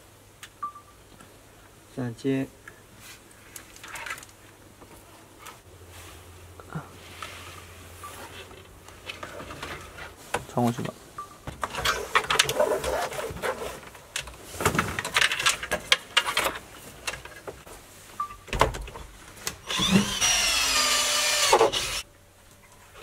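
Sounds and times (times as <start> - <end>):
small electric tool motor whirring: 19.6 - 22.0.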